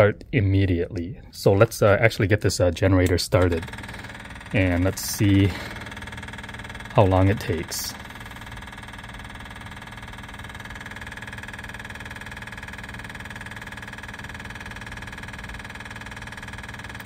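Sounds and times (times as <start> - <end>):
diesel generator engine cold starting: 3.1 - 17.0.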